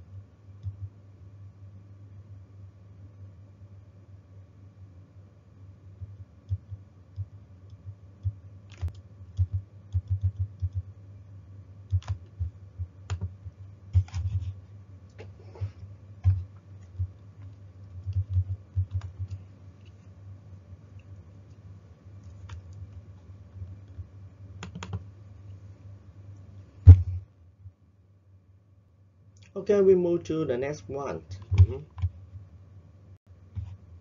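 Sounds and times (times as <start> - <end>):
typing on computer keyboard: 8.2 - 10.8, 11.9 - 12.5, 13.1 - 13.4, 17.9 - 19.4, 24.6 - 25.0.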